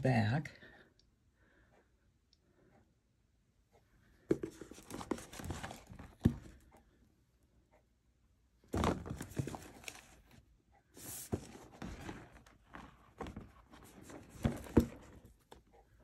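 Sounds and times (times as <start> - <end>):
box knocking on table: 4.3 - 5.2, 14.2 - 15.2
cardboard box scraping and rustling: 4.4 - 6.4, 8.8 - 10.2, 11.0 - 15.3.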